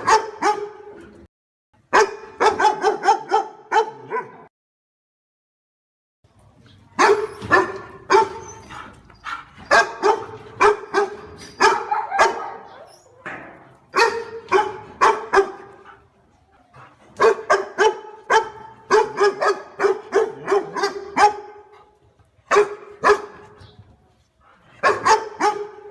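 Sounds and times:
dog barking sharply: 0.0 - 0.8, 1.9 - 4.4, 9.3 - 12.7, 14.0 - 15.7, 17.2 - 21.7, 22.5 - 23.4, 24.8 - 25.9.

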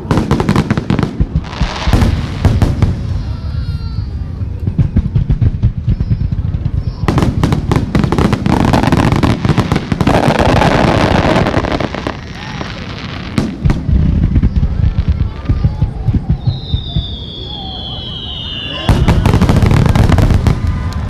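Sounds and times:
crackling of firework stars: 0.0 - 21.0
firework booms: 0.0 - 21.0.

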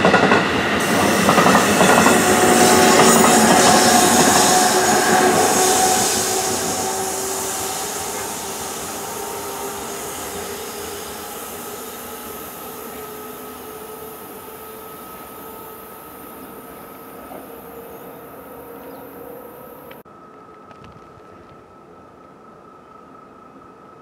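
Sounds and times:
train wheels on rails: 0.0 - 21.8.

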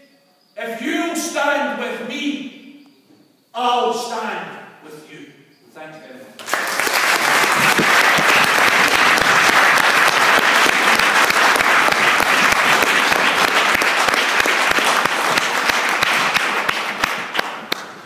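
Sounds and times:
audience applauding: 6.4 - 18.0.

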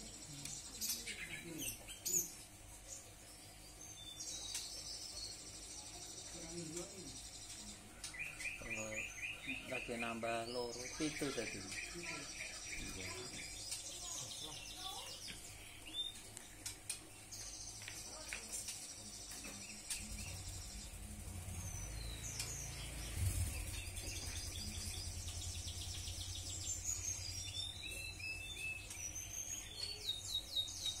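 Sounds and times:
finches chirping and twittering: 0.0 - 31.0
low steady rumble: 19.7 - 29.2.

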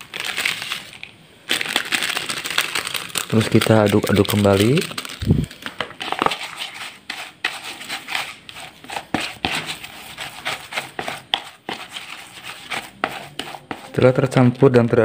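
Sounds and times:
paddle scraping in plastic basin: 6.0 - 14.0.

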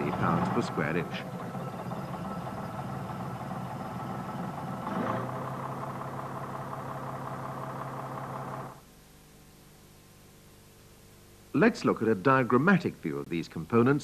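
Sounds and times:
diesel bus engine idling: 0.0 - 8.8.

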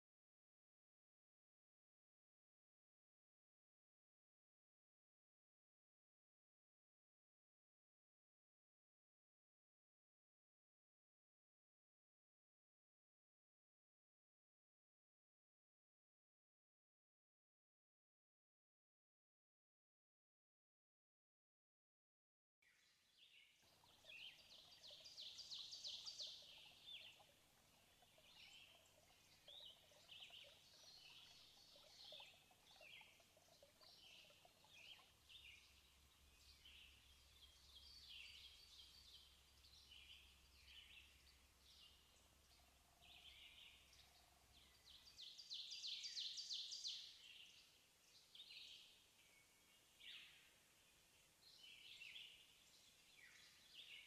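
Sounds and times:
birds chirping: 23.3 - 50.6.

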